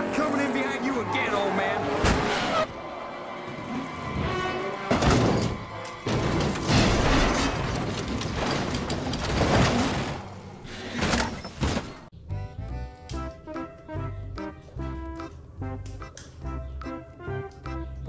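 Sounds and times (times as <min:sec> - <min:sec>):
film music: 0:00.0 - 0:07.8, 0:12.1 - 0:18.0
heavy car crash impacts: 0:04.8 - 0:12.0.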